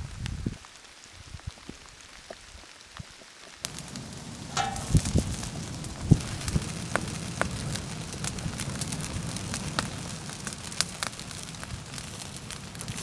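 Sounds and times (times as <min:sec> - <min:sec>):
steady rain patter: 0:00.0 - 0:13.0
wood fire crackling: 0:00.0 - 0:13.0
raindrops on metal pot lid: 0:00.7 - 0:13.0.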